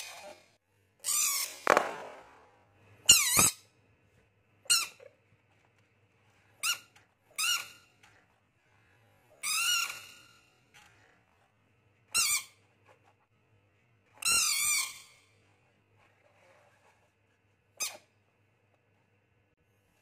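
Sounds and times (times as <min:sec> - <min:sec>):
rubbery balloon squeak: 0:09.4 - 0:10.5.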